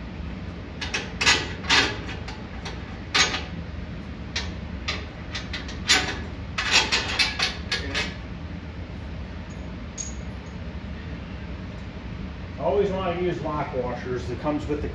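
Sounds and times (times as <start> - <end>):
metal bolts clinking: 9.5 - 10.5.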